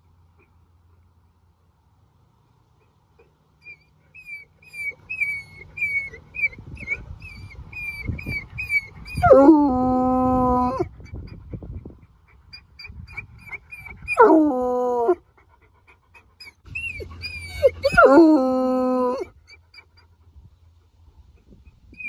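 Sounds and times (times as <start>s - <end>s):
dog whining: 3.2s - 10.9s, 12.6s - 15.2s, 16.4s - 19.8s
dog howling: 9.1s - 10.9s, 14.1s - 15.2s, 16.8s - 19.3s.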